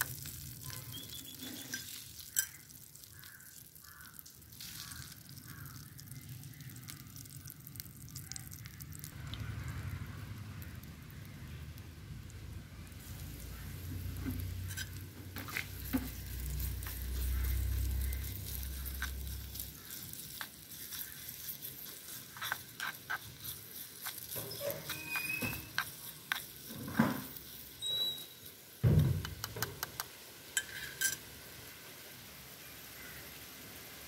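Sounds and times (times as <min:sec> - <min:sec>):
spices sizzling in pan: 0:00.0 - 0:09.2, 0:09.8 - 0:34.0
metal spoon scraping pan: 0:00.9 - 0:02.7, 0:14.0 - 0:28.6, 0:30.6 - 0:31.3.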